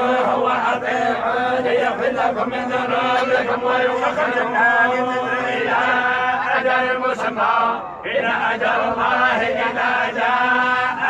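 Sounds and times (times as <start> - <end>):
men chanting recitation: 0.0 - 11.0.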